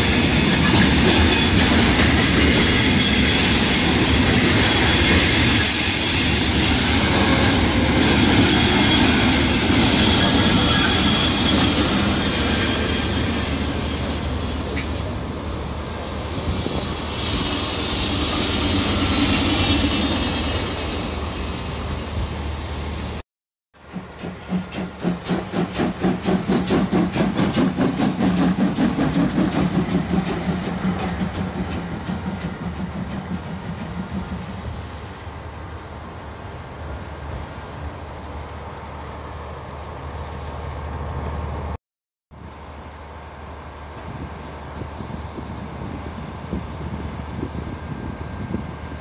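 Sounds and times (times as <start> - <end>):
steam locomotive chuffing: 23.8 - 35.4.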